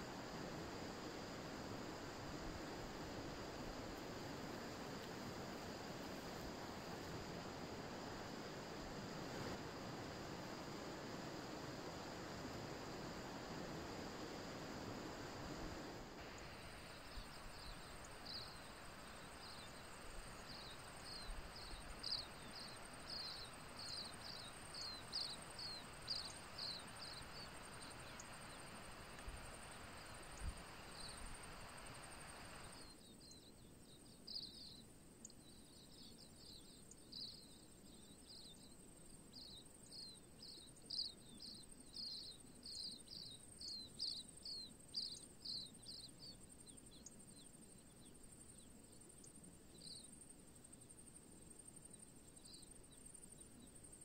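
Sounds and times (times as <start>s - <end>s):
faint high buzz: 0.0s - 33.5s
insects chirping: 0.0s - 54.0s.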